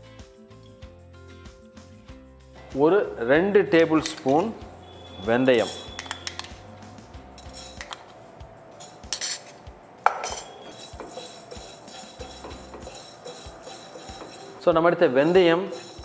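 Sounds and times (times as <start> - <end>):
seeds scraping and rattling in pan: 4.0 - 6.7, 7.4 - 8.1, 8.7 - 9.6, 10.2 - 16.0
spatula tapping pan: 10.1 - 16.0.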